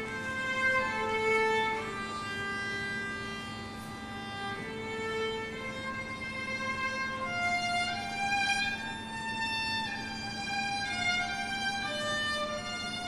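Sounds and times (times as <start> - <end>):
solo violin slow melody: 0.0 - 13.0.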